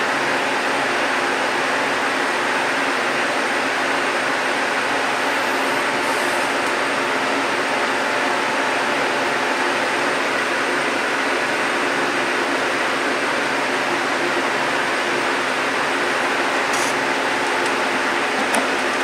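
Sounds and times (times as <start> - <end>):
loud steady hiss: 15.9 - 18.4.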